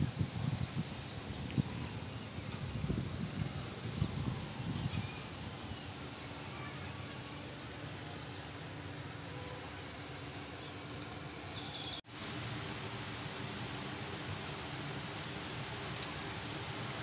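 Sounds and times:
distant traffic rumble: 0:00.0 - 0:17.0
rain hissing: 0:12.0 - 0:17.0.

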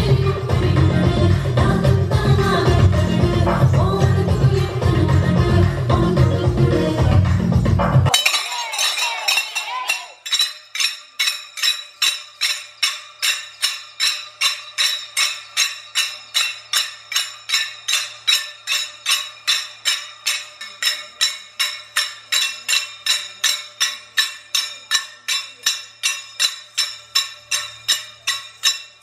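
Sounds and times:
recorded music: 0:00.0 - 0:24.6
hand cymbals clashing: 0:08.1 - 0:29.0.

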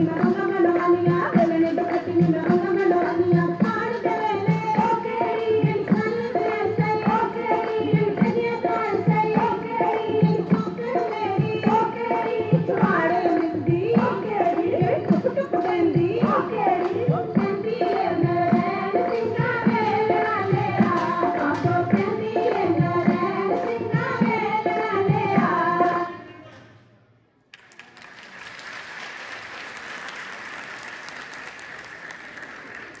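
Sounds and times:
dhol drum beat: 0:00.0 - 0:25.8
folk singing: 0:00.0 - 0:26.3
audience applauding: 0:27.5 - 0:33.0.

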